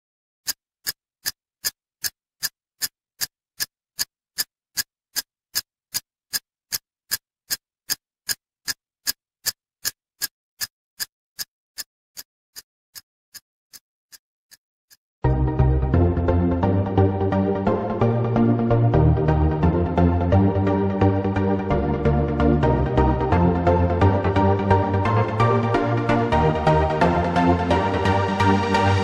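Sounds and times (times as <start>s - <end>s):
clock ticking: 0.4s - 15.0s.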